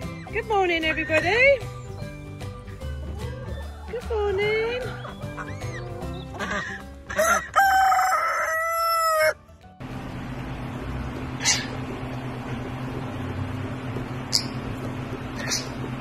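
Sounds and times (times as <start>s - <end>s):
rooster crowing: 7.1s - 9.4s
steady low hum: 9.8s - 16.0s.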